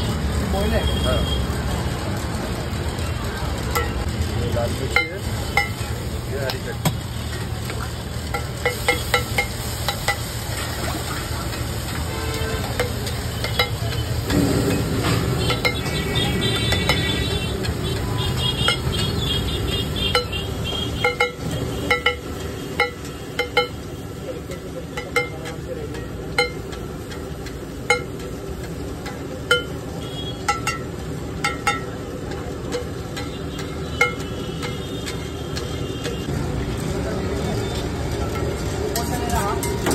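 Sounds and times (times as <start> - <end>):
egg sizzling on griddle: 0.0 - 39.9
metal spatula scraping on griddle: 8.2 - 23.3.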